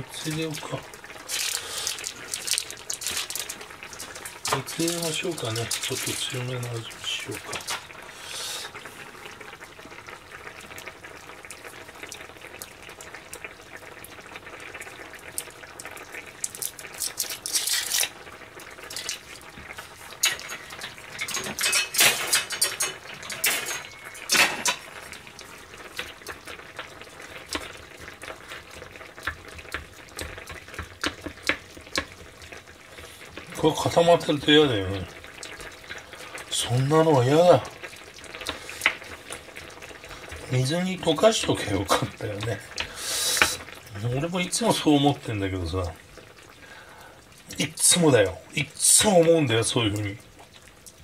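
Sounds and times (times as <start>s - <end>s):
utensil scraping a pot: 17.4s - 18.1s.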